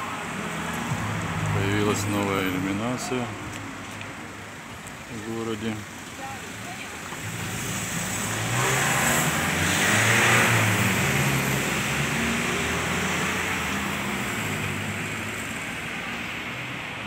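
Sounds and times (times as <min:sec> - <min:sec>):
car passing by: 0:06.6 - 0:17.0.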